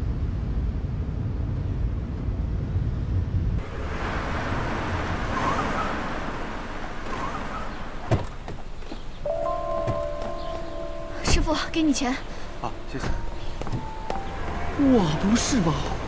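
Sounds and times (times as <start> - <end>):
car cabin rumble: 3.6 - 16.0
outdoor hiss: 3.6 - 16.0.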